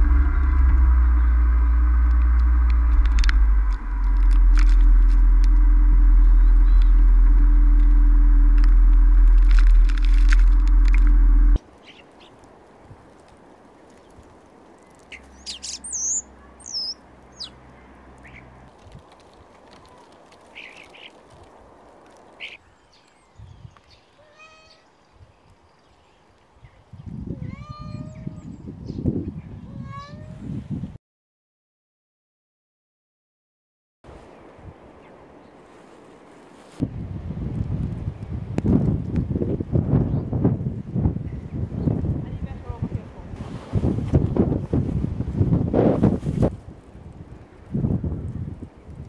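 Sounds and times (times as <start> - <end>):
faint high-pitched sounds: 0.0 - 11.6
wind buffeting microphone: 0.0 - 11.6, 26.6 - 31.0, 36.8 - 49.0
cat meowing: 24.2 - 24.8, 27.4 - 28.4, 29.7 - 30.4.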